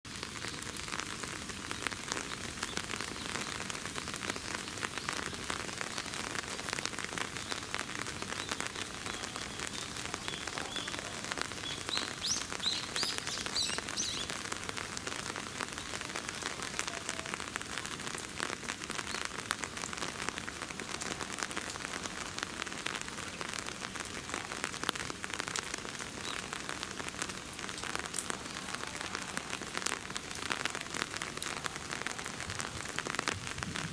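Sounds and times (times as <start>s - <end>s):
steady rain falling: 0.0s - 33.9s
raindrops ticking: 0.1s - 33.9s
bird chirping: 11.6s - 14.3s.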